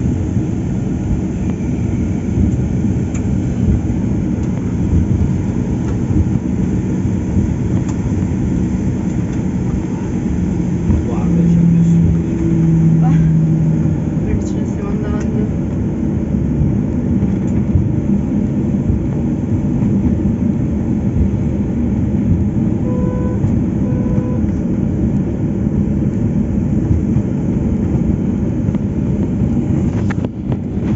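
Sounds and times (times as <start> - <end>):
aircraft engine rumble: 0.0 - 30.9
short electronic beeps: 22.8 - 24.5.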